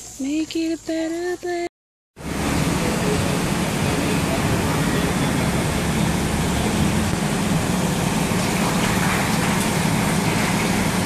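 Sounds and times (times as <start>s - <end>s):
bus engine idling: 2.2s - 11.0s.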